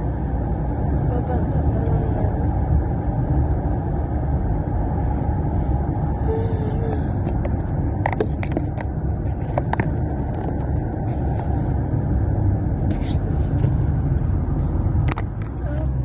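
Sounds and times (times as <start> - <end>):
car tyres and engine rumble: 0.0 - 16.0
phone handling clicks and scrapes: 7.3 - 11.6.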